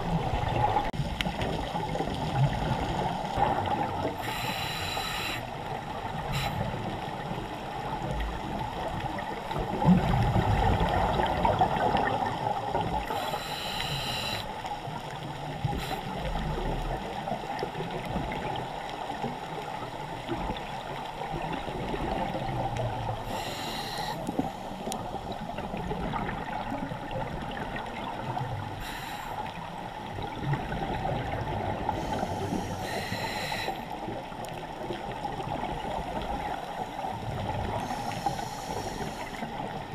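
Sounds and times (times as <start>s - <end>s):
underwater rush of water: 0.0s - 39.9s.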